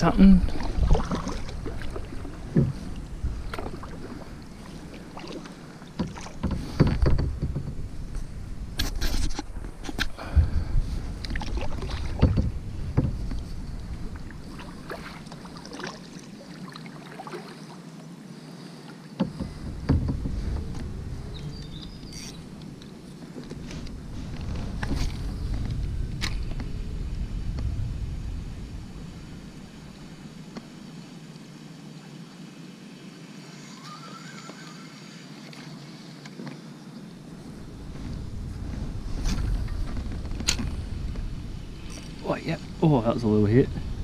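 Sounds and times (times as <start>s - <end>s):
low rumble: 0.0s - 5.5s, 7.2s - 15.7s, 19.4s - 30.8s, 37.2s - 44.0s
knocks and clunks in a canoe: 0.0s - 17.8s, 18.8s - 26.8s, 35.4s - 43.0s.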